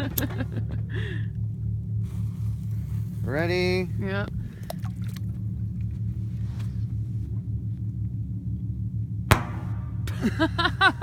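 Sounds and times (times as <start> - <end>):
steady low rumble: 0.0 - 11.0
underwater firecracker pop: 9.3 - 10.2.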